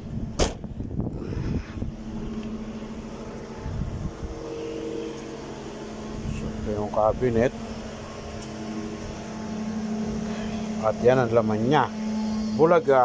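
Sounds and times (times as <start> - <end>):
low mechanical hum: 0.0 - 13.0
car boot lid slamming: 0.3 - 0.7.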